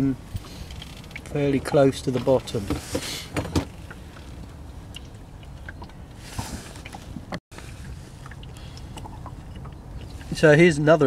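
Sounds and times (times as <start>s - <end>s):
water lapping against boat hull: 0.2s - 11.0s.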